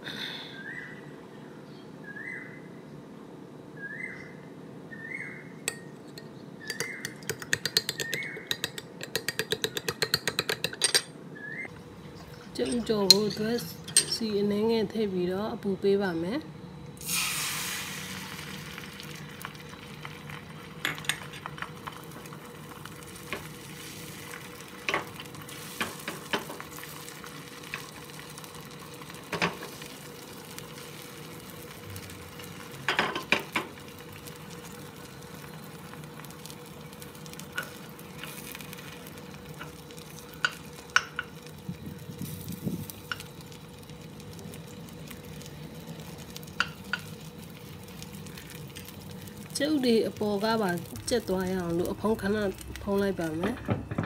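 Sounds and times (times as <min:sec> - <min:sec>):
eggs sizzling in oil: 0:05.7 - 0:11.0, 0:16.8 - 0:54.0.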